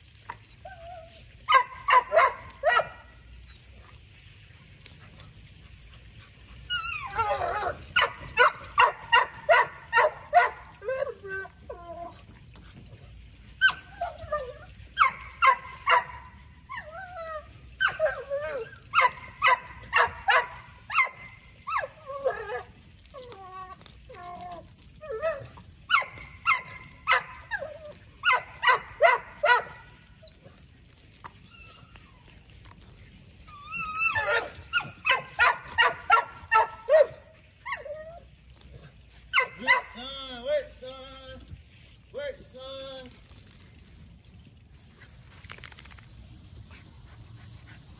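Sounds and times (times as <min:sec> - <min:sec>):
dog whining: 0:00.2 - 0:02.3, 0:06.5 - 0:12.4, 0:13.4 - 0:16.1, 0:16.7 - 0:39.8
dog barking and yelping: 0:00.2 - 0:03.7, 0:04.7 - 0:12.3, 0:13.4 - 0:30.7, 0:31.3 - 0:40.0.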